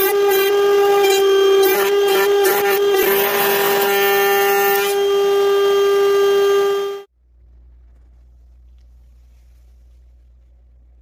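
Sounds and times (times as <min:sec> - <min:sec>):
router bit rasping wood: 0:00.0 - 0:07.0
router high whine: 0:00.0 - 0:07.1.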